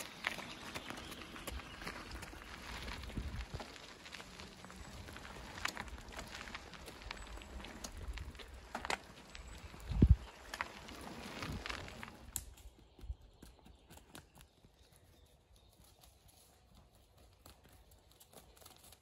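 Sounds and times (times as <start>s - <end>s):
steady rustling noise: 0.0s - 12.6s
hooves trotting on soft path: 0.0s - 19.0s.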